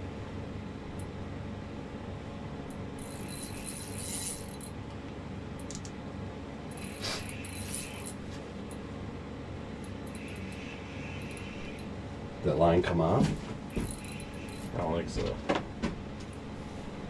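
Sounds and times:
steady low hum: 0.0s - 17.0s
fishing reel rattles and clicks: 3.0s - 4.7s, 6.7s - 8.2s, 9.8s - 11.9s, 13.8s - 14.8s.

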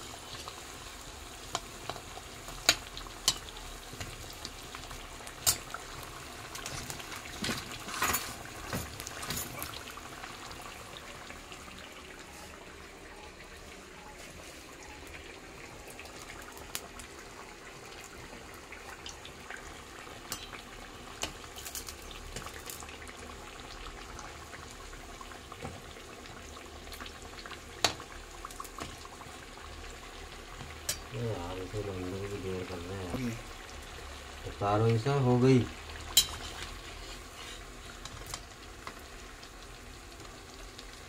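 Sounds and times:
oil crackling and popping: 0.0s - 12.2s, 15.0s - 41.0s
fritters deep-frying in oil: 0.0s - 41.0s.

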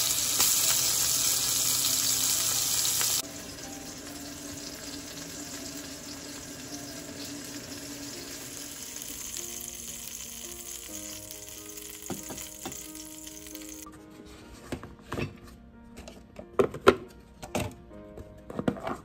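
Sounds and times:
oil sizzling in a frying pan: 0.0s - 13.9s
soft background music: 0.0s - 19.0s.

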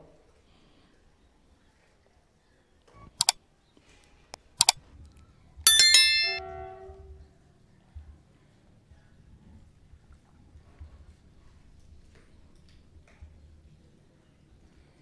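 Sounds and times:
bright bell ding: 5.7s - 6.4s.

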